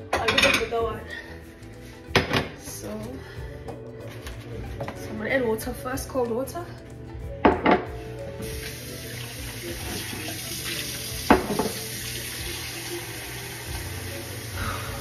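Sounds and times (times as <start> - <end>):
tap water filling a bowl: 8.4 - 14.1.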